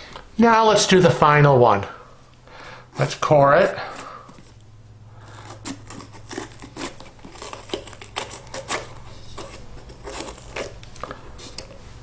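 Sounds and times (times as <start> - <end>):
knife cutting pepper crackling: 5.2 - 11.8.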